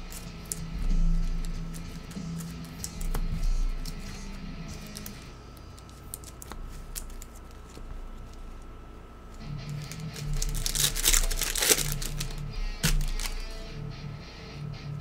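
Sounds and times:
card pack wrapper tearing: 0.0 - 7.8, 9.6 - 13.6.

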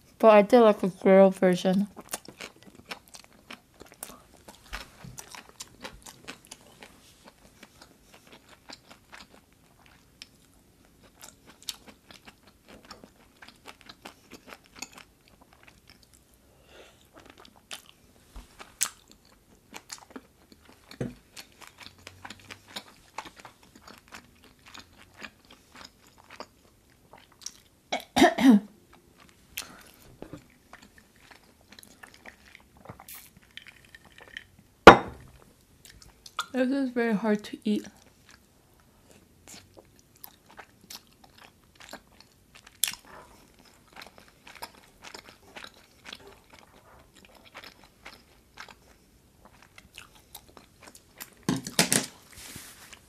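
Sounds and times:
chewing and biting food: 1.9 - 16.4, 17.0 - 27.8, 28.9 - 34.5, 39.2 - 51.5
person coughing: 28.0 - 28.7.

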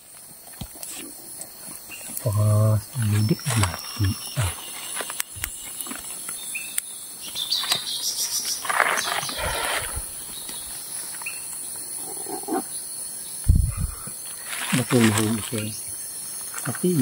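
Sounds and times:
high-pitched insect chorus: 0.0 - 17.0
rustling: 8.5 - 10.1, 14.3 - 15.6.

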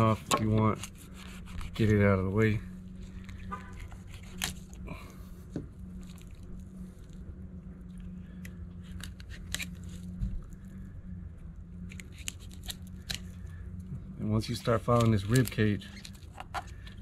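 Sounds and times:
steady low hum: 0.0 - 17.0
crisp clicks and crunches: 5.9 - 10.8, 11.7 - 17.0.

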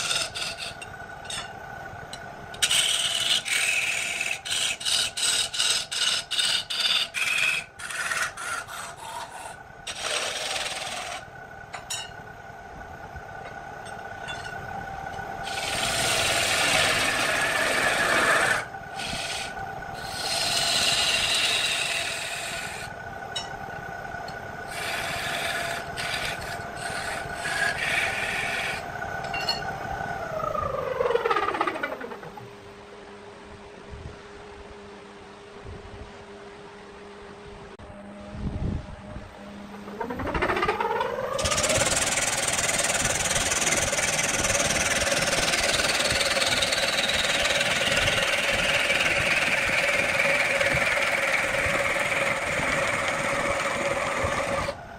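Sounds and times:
wood lathe motor hum: 0.0 - 1.4, 2.5 - 11.3, 14.8 - 23.0, 23.7 - 29.3, 30.2 - 32.5, 39.7 - 54.9
hand rasping spinning wood: 0.0 - 1.5, 2.6 - 11.3, 15.4 - 22.9, 24.7 - 28.9, 30.3 - 32.4, 39.9 - 54.8
lathe spinning down: 12.9 - 32.5, 39.0 - 54.9.

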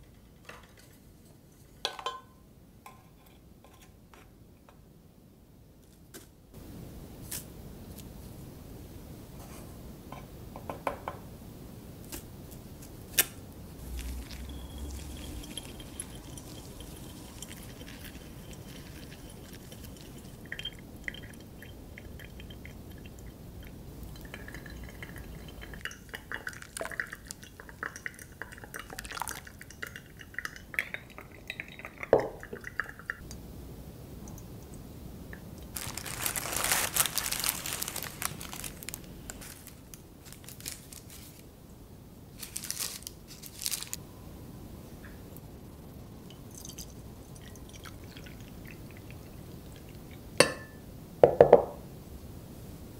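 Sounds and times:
water poured onto coffee grounds: 13.8 - 33.1, 46.5 - 50.1
water dripping through filter: 13.8 - 33.4.

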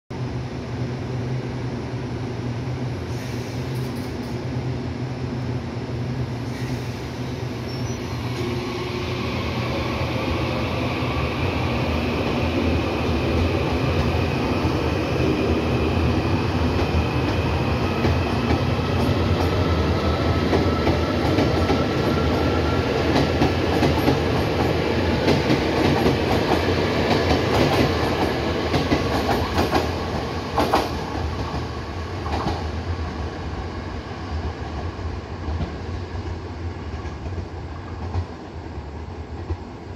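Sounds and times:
electric train accelerating with whine: 6.8 - 36.9.

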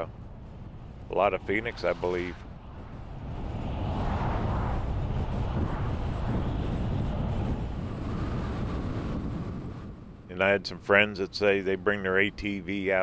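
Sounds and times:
vehicle driving at highway speed: 0.0 - 10.4.

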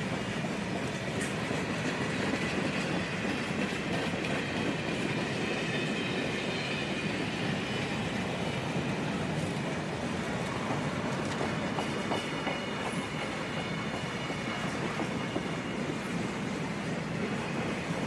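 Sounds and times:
clickety-clack over rail joints: 0.0 - 18.0
train wheels rumbling on rail: 0.0 - 18.0
faint high wheel squeal: 2.8 - 18.0.

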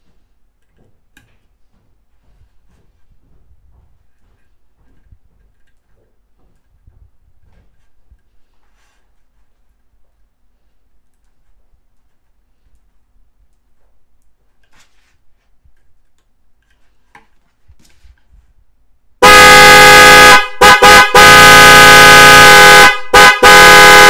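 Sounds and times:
car horns blaring: 19.2 - 24.0.

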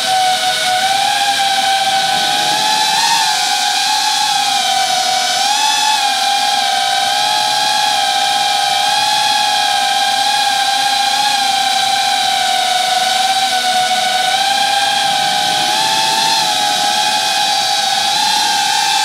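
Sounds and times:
drone propellers whining: 0.0 - 19.0.

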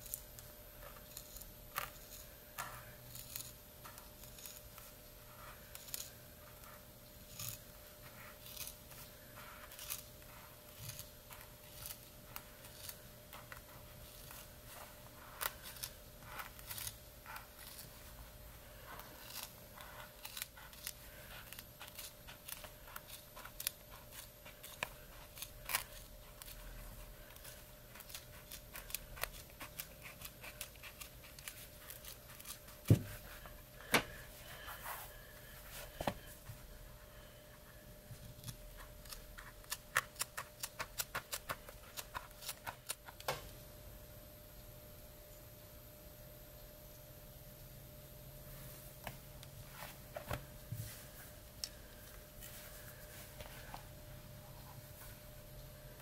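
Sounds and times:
scissors cutting leather: 0.0 - 18.2, 18.8 - 34.1, 38.3 - 43.3.

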